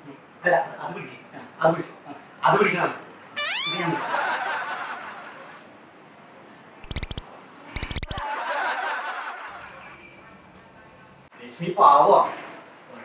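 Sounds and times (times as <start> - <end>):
comic stuttering clicks: 3.4 - 4.0, 6.8 - 7.2, 7.8 - 8.2
laughter: 3.9 - 5.6, 8.1 - 9.8.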